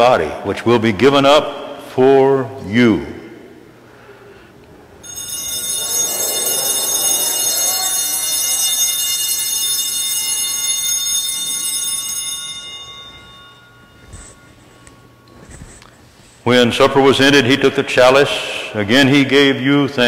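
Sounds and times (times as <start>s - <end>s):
altar bells ringing: 5.0s - 17.6s.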